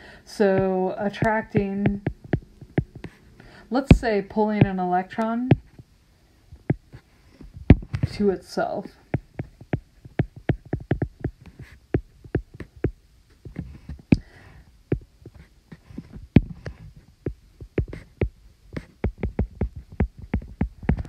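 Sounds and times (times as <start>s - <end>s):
stylus tapping on glass screen: 0.5s - 3.2s, 9.1s - 14.3s, 14.9s - 15.4s, 17.3s - 21.0s.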